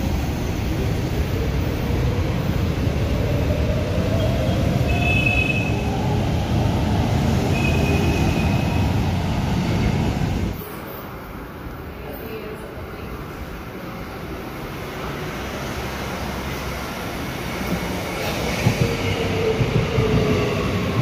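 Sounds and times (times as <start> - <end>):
train wheels rumbling on rail: 14.3 - 21.0.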